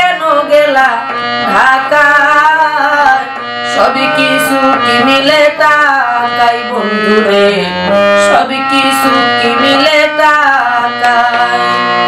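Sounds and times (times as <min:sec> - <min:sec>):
harmonium chords: 0:00.0 - 0:12.0
woman singing folk song: 0:00.0 - 0:12.0.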